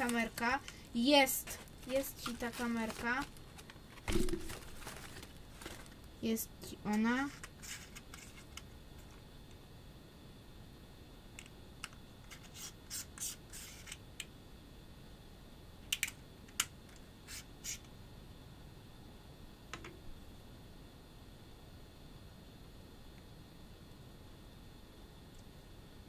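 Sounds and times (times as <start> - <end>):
packaging rustling and scraping: 0.0 - 6.1.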